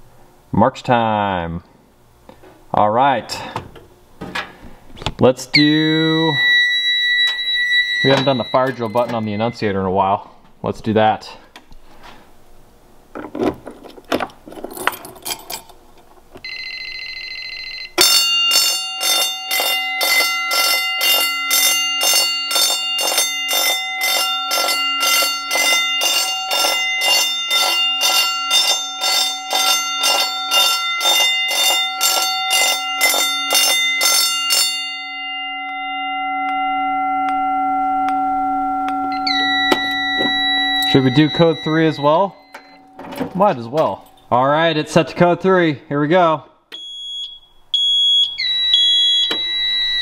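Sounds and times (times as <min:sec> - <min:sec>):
fire alarm bell pulsing: 0:05.5 - 0:10.2, 0:16.4 - 0:44.4, 0:46.7 - 0:50.0
short electronic tone: 0:05.6 - 0:09.8, 0:36.7 - 0:43.4
steady ringing tone: 0:05.6 - 0:10.3, 0:16.4 - 0:44.8.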